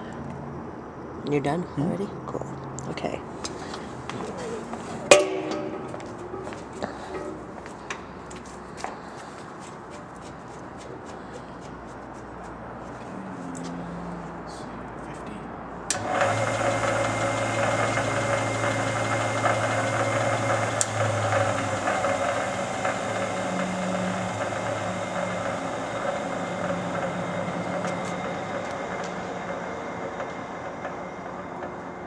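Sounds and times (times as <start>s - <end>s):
lathe motor hum: 3.3s - 9.4s, 15.9s - 32.0s.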